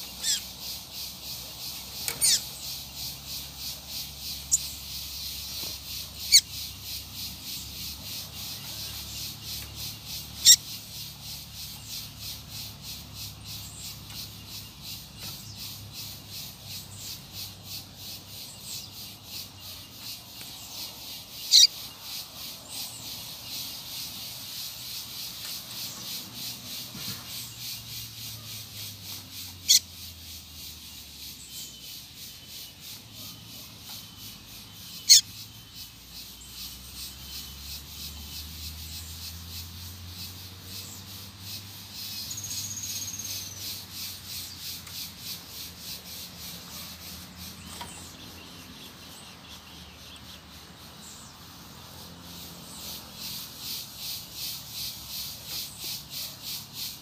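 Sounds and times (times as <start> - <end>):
high bird trill: 0.0 - 26.4, 27.5 - 37.9, 41.6 - 46.0
insects pulsing calls: 0.0 - 57.0.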